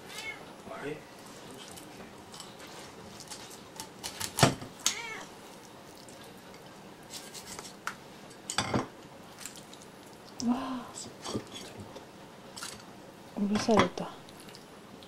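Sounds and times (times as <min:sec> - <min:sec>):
cat meowing: 0:00.0 - 0:00.5, 0:04.8 - 0:05.3.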